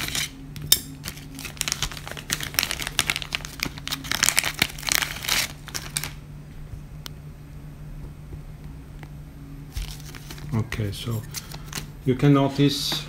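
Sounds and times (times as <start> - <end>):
plastic bag crinkling: 1.0 - 6.2, 9.7 - 11.9.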